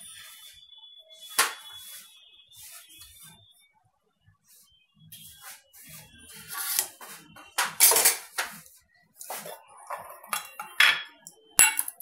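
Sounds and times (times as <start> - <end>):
dishes and utensils clattering: 7.5 - 8.6, 9.2 - 12.0.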